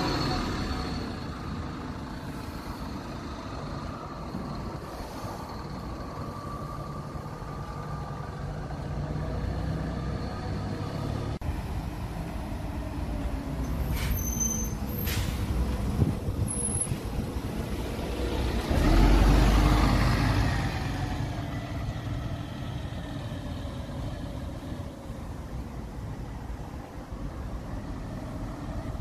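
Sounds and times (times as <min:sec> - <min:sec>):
diesel bus engines running: 0:00.0 - 0:29.0
air-brake hisses: 0:13.8 - 0:15.5.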